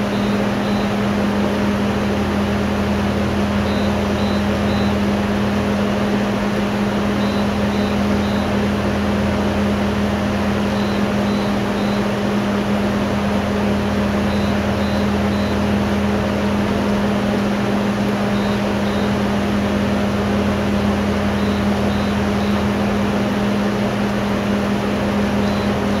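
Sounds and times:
surgical equipment humming: 0.0 - 26.0
short high beeps: 3.7 - 4.9, 7.2 - 8.5.

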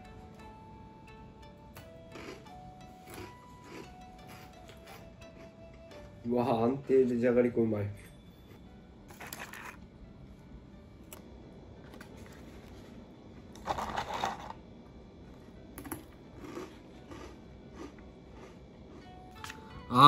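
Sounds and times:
person crunching potato sticks: 1.8 - 5.8, 16.3 - 19.6.

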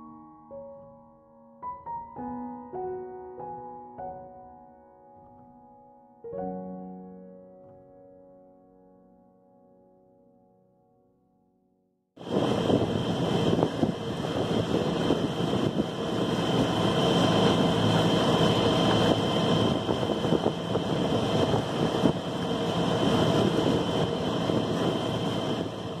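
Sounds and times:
wind rushing over microphone: 12.2 - 26.0
boat engine running: 12.4 - 26.0.

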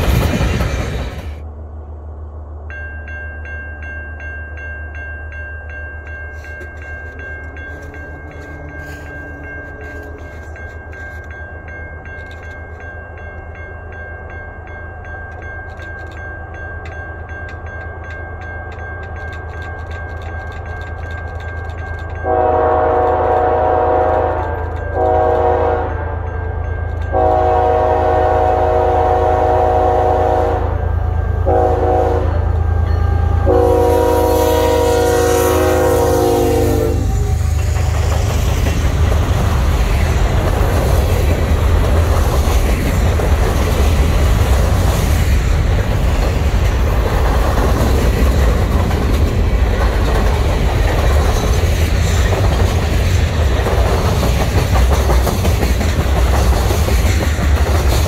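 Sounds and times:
crossing bell ringing: 2.6 - 44.5
locomotive engine rumble: 19.2 - 58.0
train air horn: 22.2 - 37.8.

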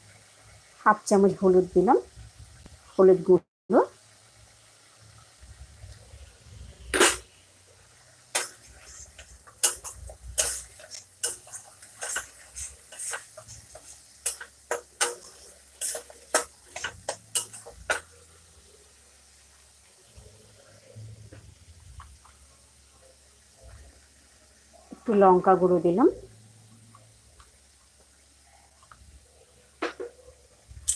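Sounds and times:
steel spatula scraping a pan: 6.5 - 7.3, 8.3 - 18.2.

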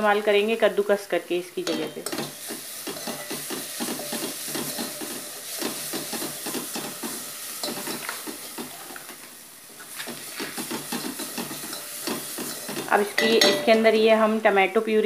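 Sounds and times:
frying sizzle: 0.0 - 15.0
spoon scraping metal pot: 1.6 - 8.2, 9.8 - 13.8.

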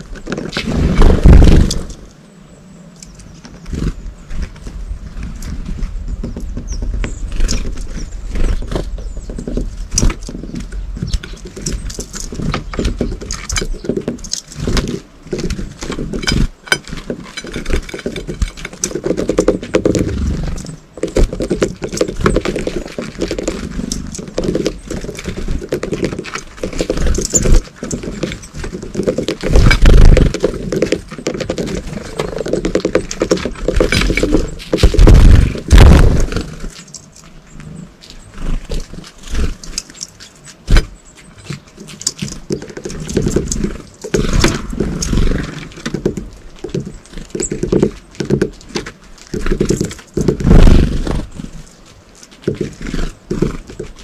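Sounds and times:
loud low thumps: 0.8 - 1.9, 34.8 - 36.5
birds pecking taps and clicks: 5.4 - 35.1, 36.7 - 50.4.

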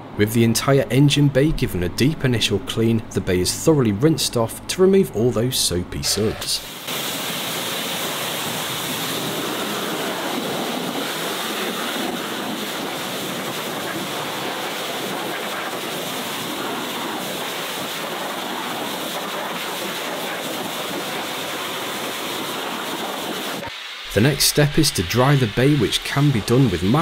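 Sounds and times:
pressure washer spray hissing: 6.6 - 27.0.

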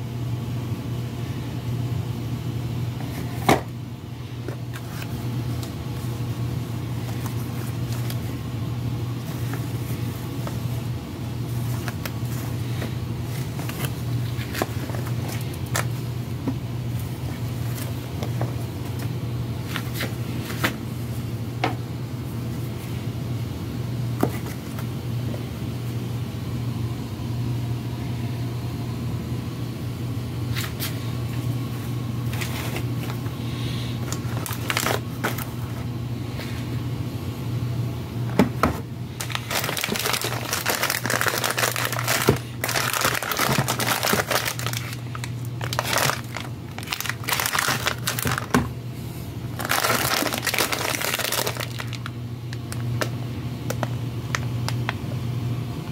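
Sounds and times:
steady low hum: 0.0 - 55.9
plastic packets crinkling: 4.4 - 8.4, 9.1 - 20.8, 32.3 - 33.4, 34.0 - 35.8, 39.1 - 48.7, 49.6 - 54.9.

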